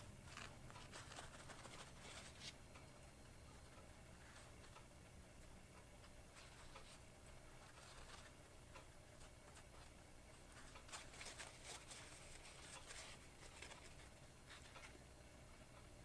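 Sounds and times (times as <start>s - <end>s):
paper towel rustling and scratching: 0.3s - 2.6s, 9.1s - 15.0s.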